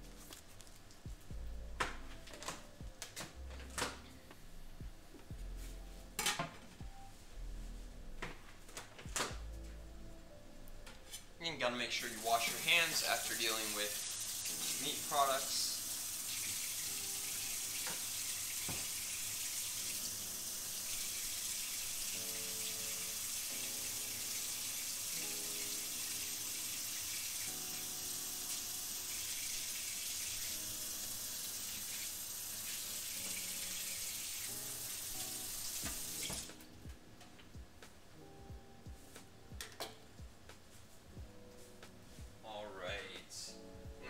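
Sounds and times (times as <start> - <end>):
tap water running: 11.9 - 36.6.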